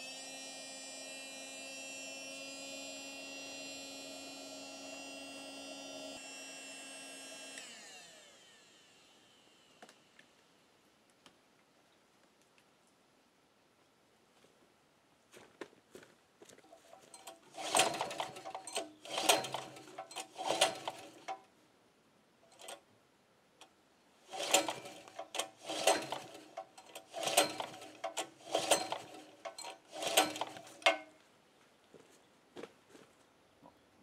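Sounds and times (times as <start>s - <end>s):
engine pull-starter whirring rattle: 16.9s - 21.4s, 22.5s - 22.8s, 24.3s - 31.1s.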